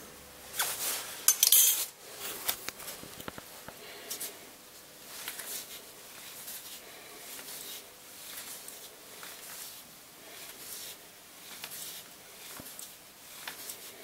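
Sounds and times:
metal tools clinking: 1.3 - 1.9.

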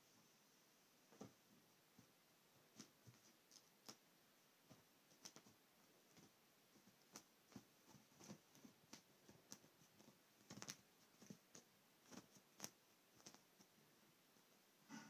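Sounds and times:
cat claws scratching duvet: 2.7 - 4.0, 4.6 - 13.8.

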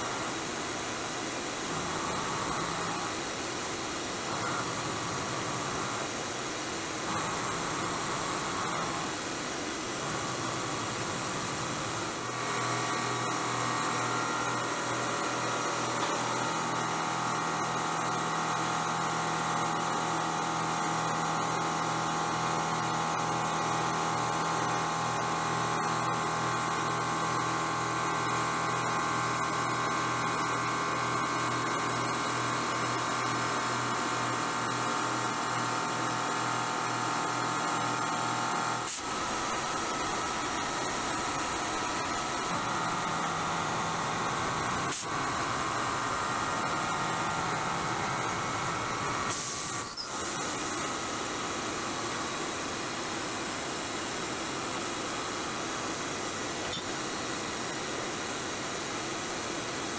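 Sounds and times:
milling spindle whine: 0.0 - 53.9
air blast hissing: 44.8 - 45.4, 47.6 - 51.1.

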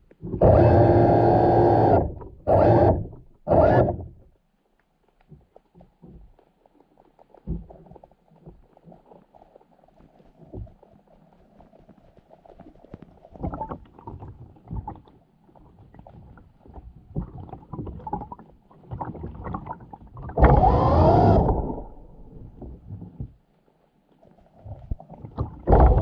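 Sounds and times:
underwater water movement: 0.0 - 26.0
muffled underwater knocks: 7.4 - 8.6.

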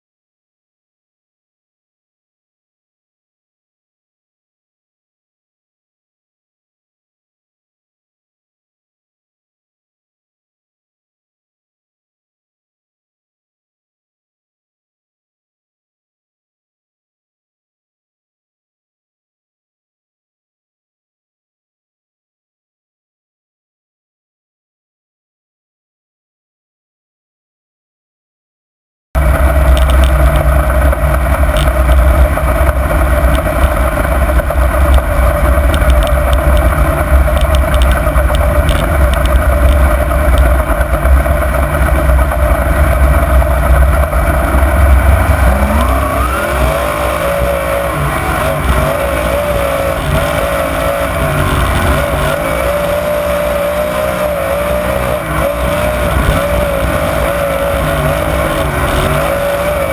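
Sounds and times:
race car engine roaring: 29.2 - 59.9.

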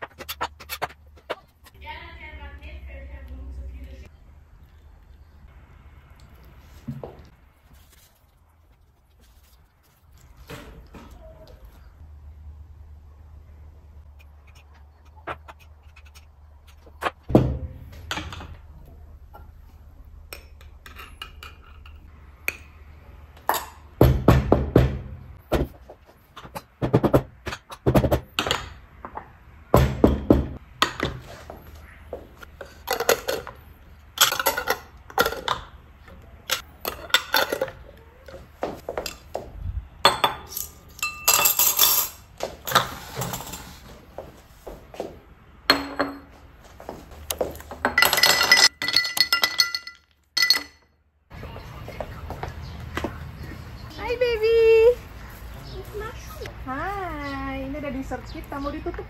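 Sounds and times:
glass jars clinking: 34.2 - 35.7, 36.5 - 37.8, 40.0 - 43.8, 45.7 - 46.4, 47.8 - 50.9.

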